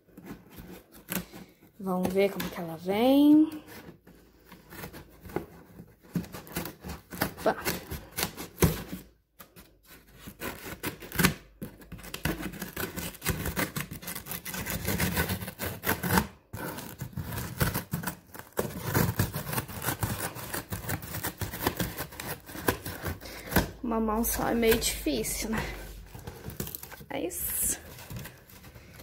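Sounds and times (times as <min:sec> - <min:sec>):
scissors cutting packing tape: 0:10.1 - 0:23.8, 0:25.5 - 0:29.0.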